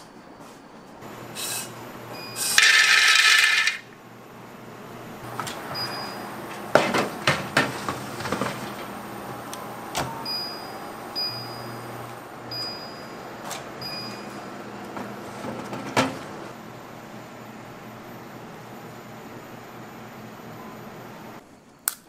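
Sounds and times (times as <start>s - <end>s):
short high oven beeps: 1.1s - 2.8s, 5.7s - 6.5s, 10.2s - 14.8s
oven door shutting: 5.3s - 16.5s.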